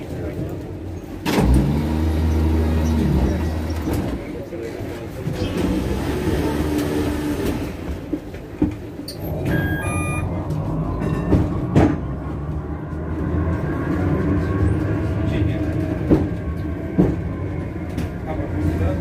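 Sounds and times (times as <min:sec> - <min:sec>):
tram rumbling on track: 0:00.0 - 0:19.0
short high tones: 0:09.5 - 0:10.3.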